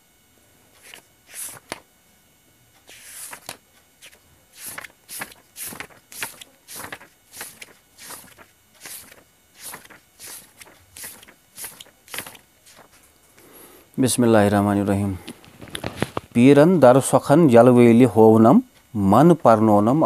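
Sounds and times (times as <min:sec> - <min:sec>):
book pages turning: 0:00.8 - 0:01.8, 0:02.8 - 0:13.0, 0:15.5 - 0:16.3.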